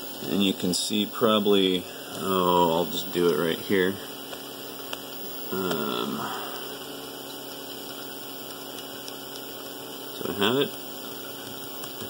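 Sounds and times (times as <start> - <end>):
low electrical hum: 0.0 - 12.0
murmured vocal sound: 5.5 - 6.8.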